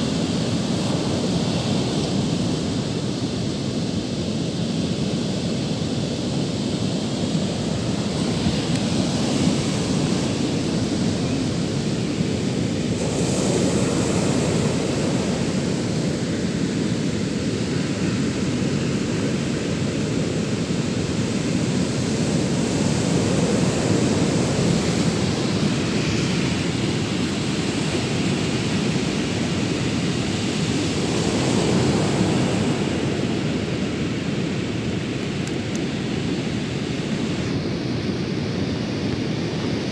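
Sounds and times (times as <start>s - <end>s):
ocean surf breaking on beach: 0.0s - 39.9s
wind rumbling on microphone: 0.0s - 39.9s.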